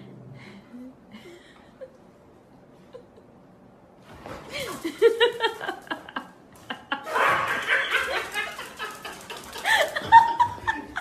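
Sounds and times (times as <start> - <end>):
people laughing: 4.5 - 11.0.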